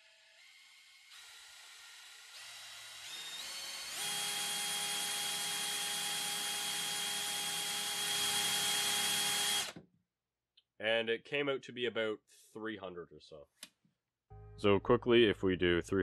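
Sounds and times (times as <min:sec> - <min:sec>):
electric drill motor whine: 0:00.0 - 0:09.8.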